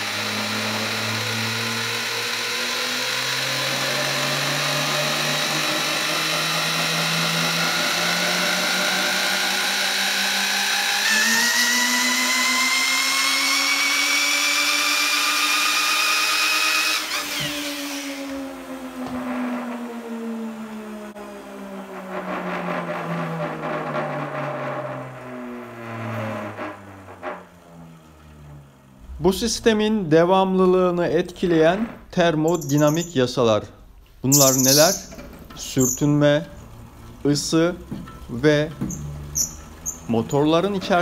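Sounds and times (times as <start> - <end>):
electric drill whine: 0.0 - 28.9
motors coasting hum: 0.0 - 33.0, 34.0 - 41.0.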